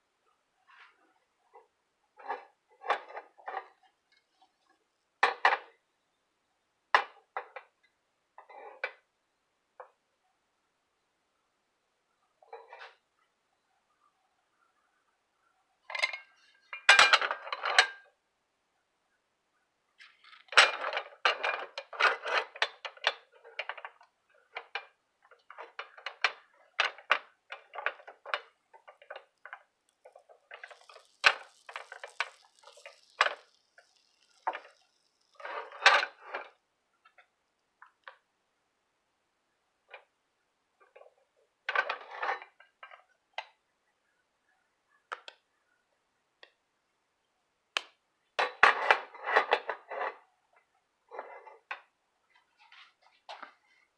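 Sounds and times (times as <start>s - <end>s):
butter sizzling: 27.6s - 36.2s
butter wrapper rubbing: 29.9s - 35.4s.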